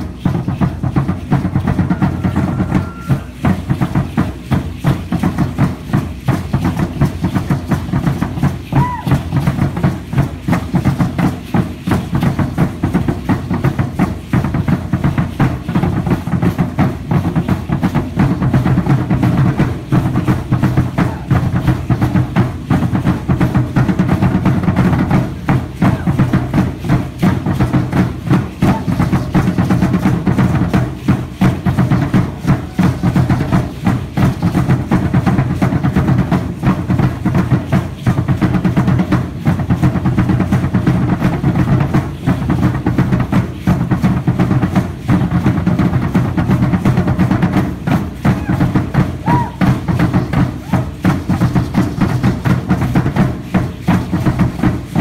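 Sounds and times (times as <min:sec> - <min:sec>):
fast deep drumming: 0:00.0 - 0:55.0.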